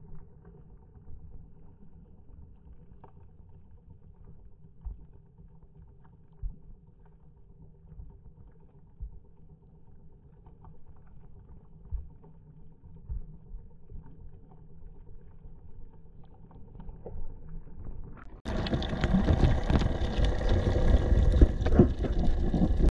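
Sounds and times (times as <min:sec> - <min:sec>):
muffled underwater rumble: 0:00.0 - 0:22.9
rush of water: 0:18.5 - 0:22.9.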